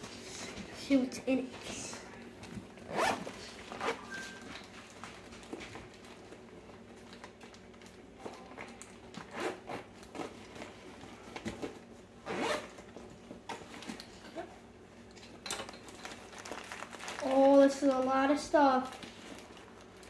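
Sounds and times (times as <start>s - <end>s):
zipper rasping open: 2.9s - 4.4s, 9.2s - 10.3s, 12.2s - 12.7s.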